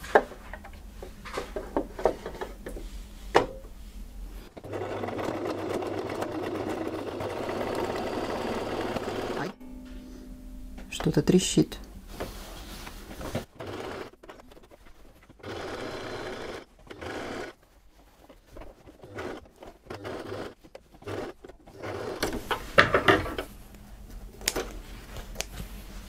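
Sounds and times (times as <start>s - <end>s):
sewing machine stitching: 4.5s - 9.6s, 13.4s - 17.6s, 18.6s - 22.4s
rustling: 7.5s - 15.6s, 16.2s - 22.8s.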